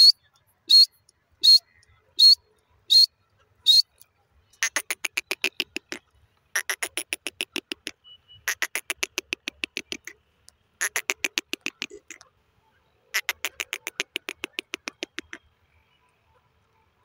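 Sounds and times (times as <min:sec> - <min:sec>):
francolin calling: 0:00.0 - 0:04.0, 0:13.1 - 0:15.4.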